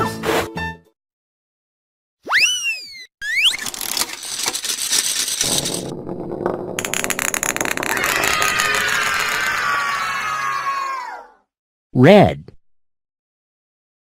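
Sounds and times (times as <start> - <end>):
swooping cartoon tone: 2.2 - 3.6
rattling clatter of clicks: 3.6 - 5.9
falling tones: 5.3 - 10.6.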